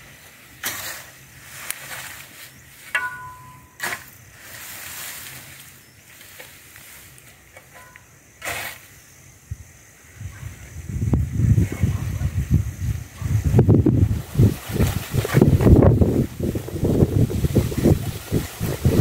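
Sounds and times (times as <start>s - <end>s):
hoe and shovel scraping soil: 0.0s - 9.0s, 14.4s - 16.2s.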